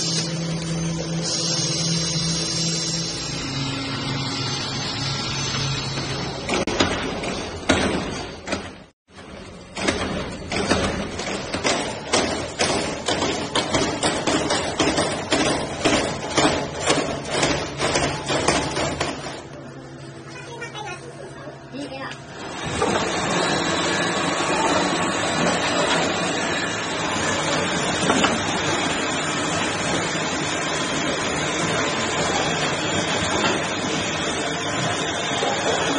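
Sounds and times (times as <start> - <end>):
machining equipment running: 0.0 - 35.9
punch presses stamping metal: 9.8 - 19.4.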